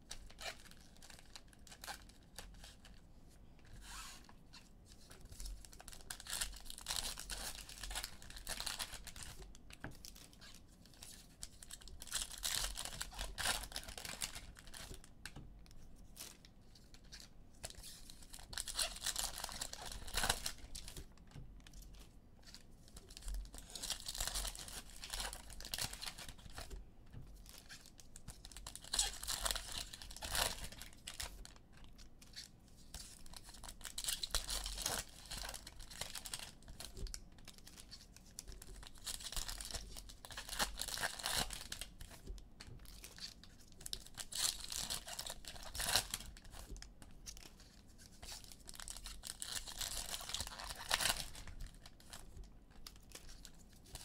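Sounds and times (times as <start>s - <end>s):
foil wrappers tearing and crinkling: 17.7s - 21.0s, 23.5s - 26.7s, 28.6s - 31.4s, 33.3s - 37.0s, 38.8s - 42.2s, 43.8s - 46.7s, 48.4s - 52.2s.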